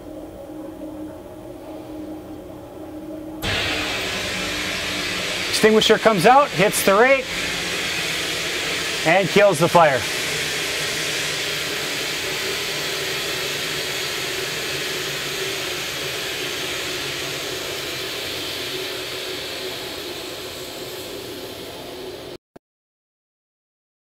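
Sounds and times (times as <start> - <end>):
fire extinguisher spraying hiss: 3.4 - 22.1.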